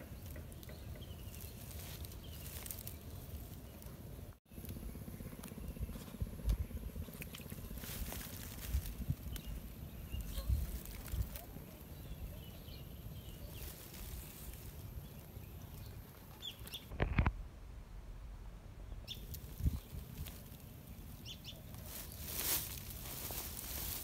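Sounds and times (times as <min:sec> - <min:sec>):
rustling and handling: 0:00.1 - 0:04.2, 0:07.0 - 0:09.6, 0:13.4 - 0:17.3, 0:19.2 - 0:24.0.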